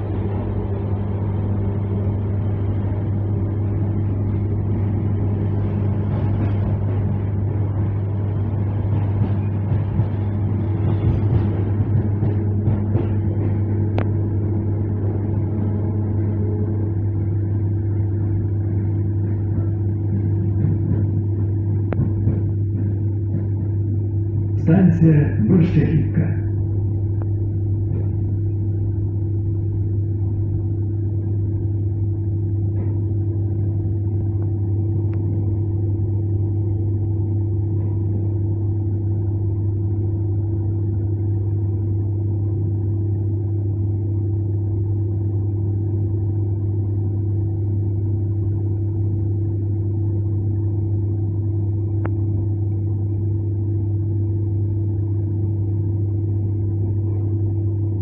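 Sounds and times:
steady higher tone: 0.0 - 58.0
train running hum: 0.0 - 58.0.

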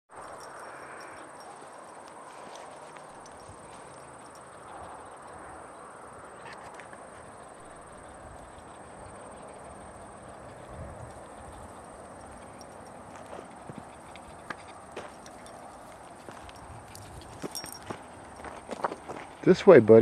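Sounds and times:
rustling through dry grass: 1.5 - 4.0
footsteps on dirt trail: 1.5 - 4.4, 13.1 - 19.5.

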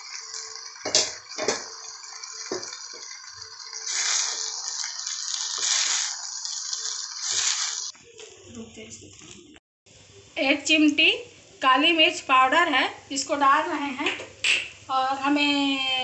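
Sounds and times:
rice sizzling in pan: 0.0 - 8.0.

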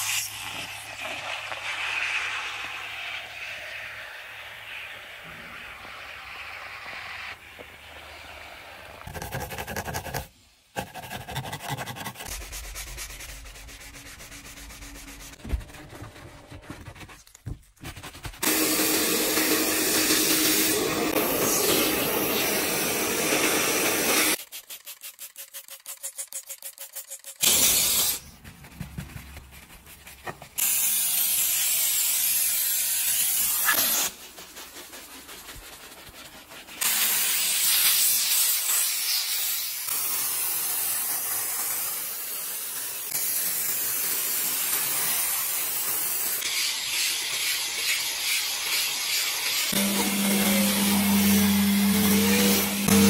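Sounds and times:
steam cleaner hissing: 0.0 - 9.0, 18.4 - 24.4, 27.4 - 28.3, 30.5 - 35.9, 36.7 - 53.0
scrubbing strokes: 11.0 - 18.5, 28.0 - 30.6, 33.5 - 37.4.

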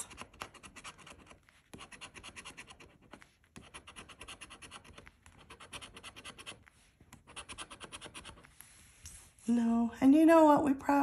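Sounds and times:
coin scratching lottery ticket: 0.1 - 6.6, 7.2 - 8.5.

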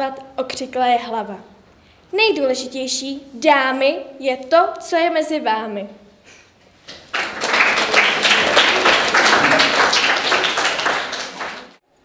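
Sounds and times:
audience applauding: 6.9 - 11.8.

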